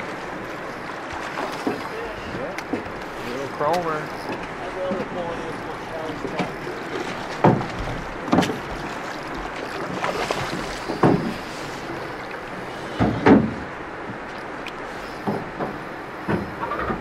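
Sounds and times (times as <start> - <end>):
oars knocking: 0.0 - 12.2, 12.8 - 14.3
river rushing: 0.0 - 17.0.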